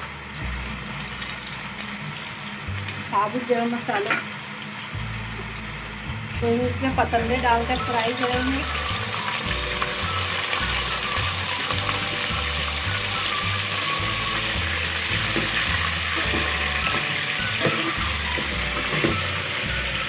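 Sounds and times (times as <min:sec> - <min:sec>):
beef sizzling in hot oil: 0:00.0 - 0:20.0
background music with bass line: 0:05.0 - 0:20.0.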